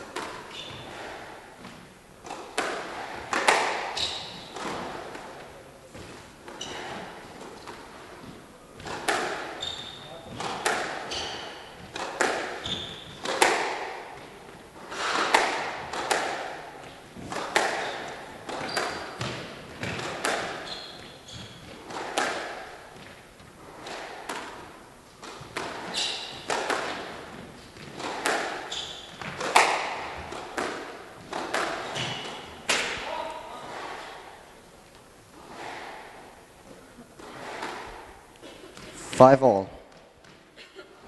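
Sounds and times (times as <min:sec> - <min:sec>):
shoes squeaking on wooden floor: 0:00.0 - 0:02.4, 0:03.0 - 0:13.4, 0:16.8 - 0:22.1, 0:24.6 - 0:34.1
squash ball hitting rackets and walls: 0:00.0 - 0:39.1.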